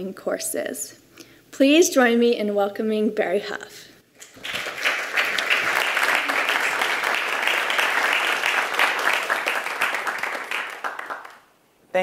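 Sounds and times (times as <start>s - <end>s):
audience applauding: 4.2s - 11.5s.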